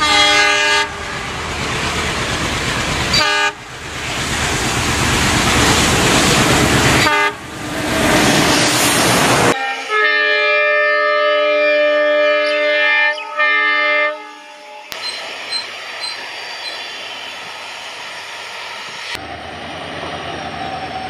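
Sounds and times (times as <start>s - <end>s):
locomotive air horn: 0.0s - 1.0s, 3.1s - 3.6s, 7.0s - 7.4s, 9.6s - 14.9s
diesel train rumbling: 0.0s - 21.0s.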